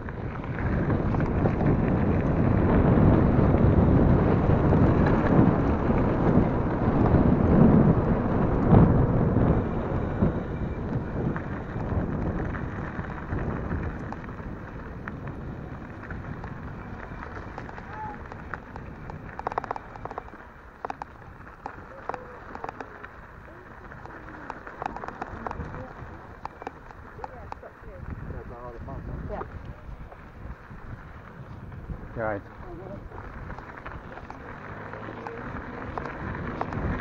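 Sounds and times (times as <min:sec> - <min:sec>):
bike tyres rolling over gravel: 0:00.0 - 0:37.0
wind buffeting microphone: 0:00.0 - 0:37.0.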